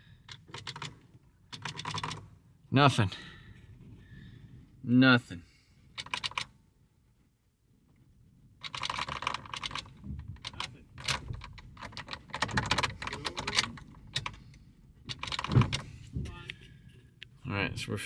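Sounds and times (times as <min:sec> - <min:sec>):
ignition key clicking: 0:00.2 - 0:02.2, 0:06.0 - 0:06.5, 0:08.6 - 0:15.8
keyring rattling: 0:00.3 - 0:02.2, 0:06.0 - 0:06.5, 0:08.6 - 0:14.4, 0:15.0 - 0:15.9.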